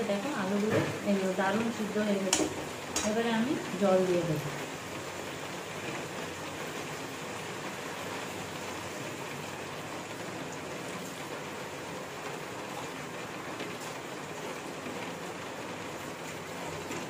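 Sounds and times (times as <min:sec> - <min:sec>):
potatoes sizzling in a pan: 0:00.0 - 0:06.0.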